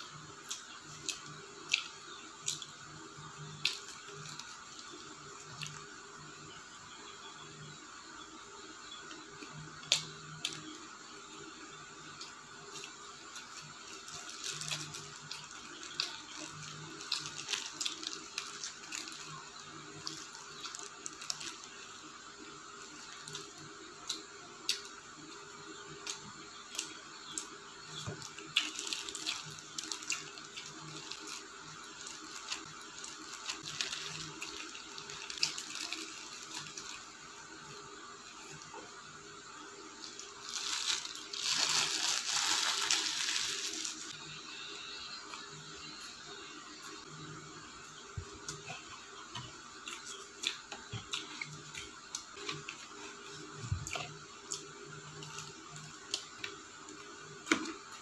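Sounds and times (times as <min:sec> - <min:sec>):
paper wrapper rustling: 0:28.6 - 0:37.1, 0:40.4 - 0:44.1.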